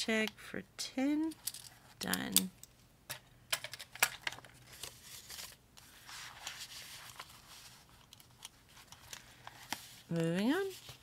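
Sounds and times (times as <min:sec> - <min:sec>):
paper rustling: 0:04.2 - 0:11.0.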